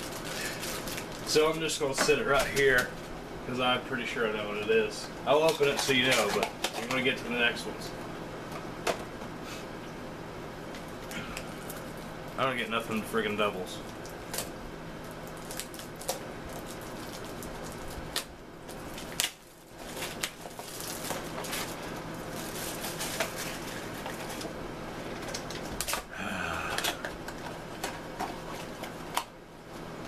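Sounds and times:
foil package crinkling: 0.0s - 3.1s, 5.3s - 7.3s, 10.8s - 26.1s.

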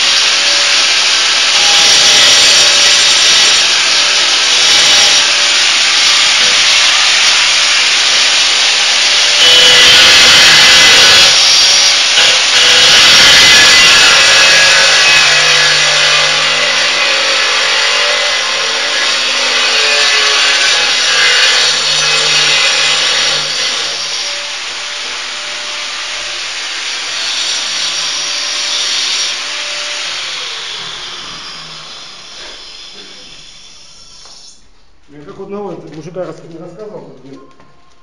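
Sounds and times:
angle grinder cutting tile: 0.0s - 34.6s.

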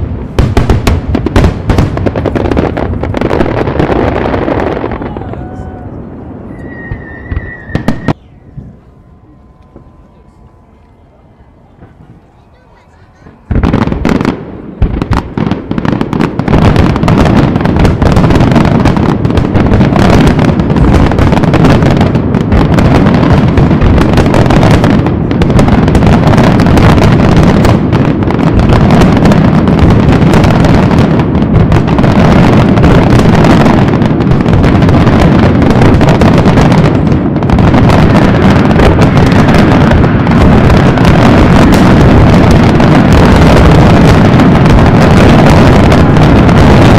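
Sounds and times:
fireworks bangs and crackling: 0.0s - 46.9s.

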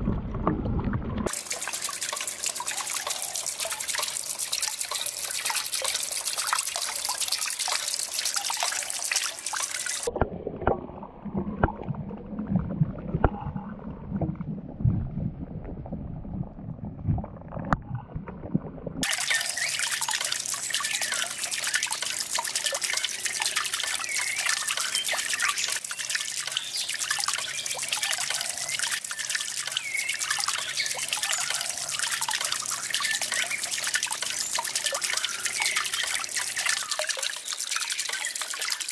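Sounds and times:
fountain water splashing into pond: 1.3s - 13.4s, 19.0s - 38.9s
sharp splashes: 19.0s - 38.9s.

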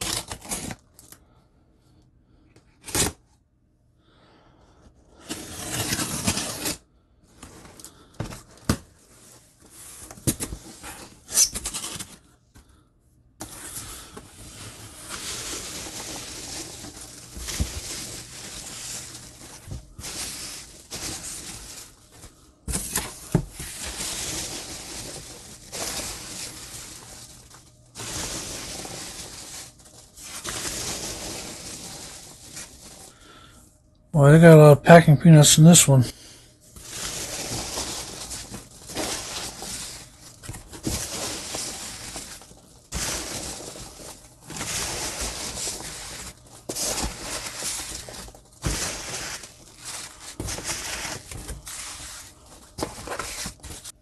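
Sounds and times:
tape tearing: 0.0s - 0.8s, 2.8s - 3.2s, 5.2s - 6.8s, 10.0s - 12.2s, 22.7s - 33.1s, 36.8s - 53.9s
cardboard box being slit open: 5.3s - 6.8s
packing peanuts rustling: 13.5s - 33.5s, 36.7s - 54.0s.

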